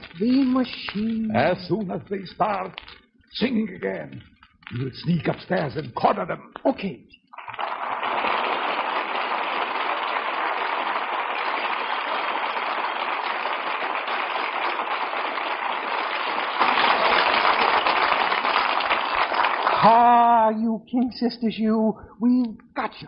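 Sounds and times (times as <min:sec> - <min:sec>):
audience applauding: 0:07.4 - 0:20.2.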